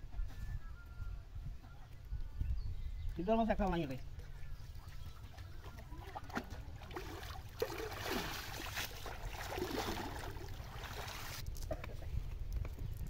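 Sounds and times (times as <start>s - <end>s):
pond water splashing: 4.7s - 11.4s.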